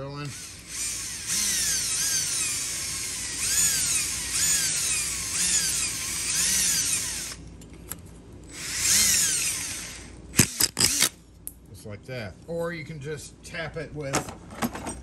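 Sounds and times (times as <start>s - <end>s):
electric drill drilling metal: 0.2s - 7.4s, 8.5s - 11.2s.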